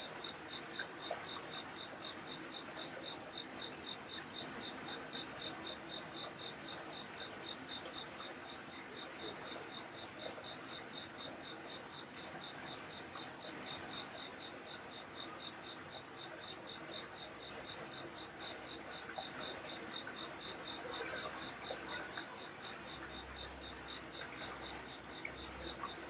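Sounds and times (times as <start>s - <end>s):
cricket chirping: 0.0s - 26.0s.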